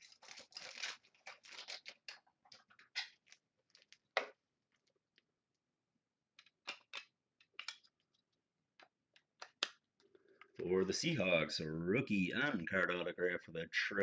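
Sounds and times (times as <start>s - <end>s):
trading cards rustling: 0.0s - 4.1s.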